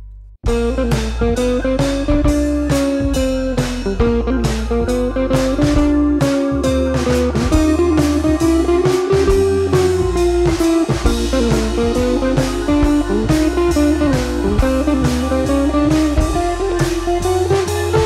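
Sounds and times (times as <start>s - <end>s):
bluesy guitar tune: 0.5s - 18.0s
steady drum beat: 0.5s - 18.0s.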